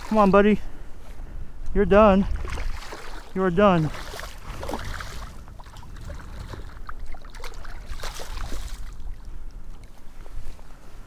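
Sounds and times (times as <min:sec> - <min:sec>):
wind rumble on microphone: 0:00.0 - 0:11.0
shallow water splashing: 0:02.2 - 0:10.3.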